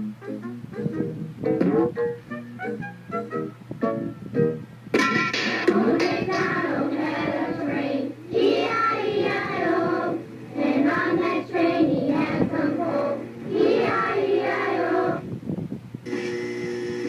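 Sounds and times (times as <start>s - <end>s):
backing music: 0.0s - 15.2s
high voices singing: 5.5s - 15.5s.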